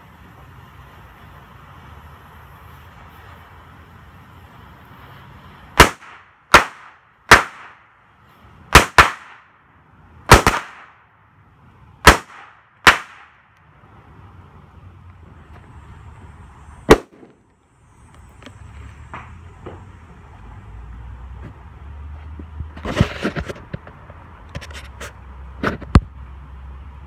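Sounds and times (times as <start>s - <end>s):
firecrackers banging: 0.2s - 11.2s, 12.0s - 14.5s, 15.2s - 17.7s.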